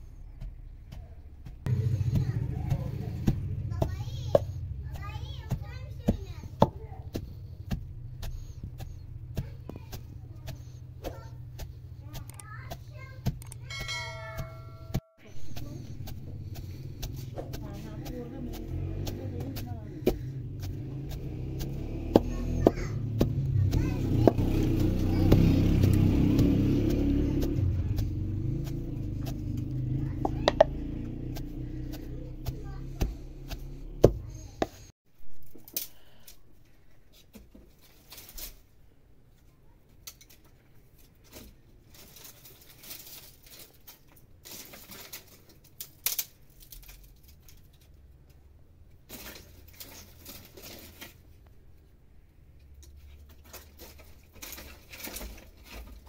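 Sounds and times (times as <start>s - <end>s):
wooden pestle pounding stone mortar: 0.3s - 34.9s
dry branches crackling and snapping: 41.0s - 47.9s, 53.3s - 56.0s.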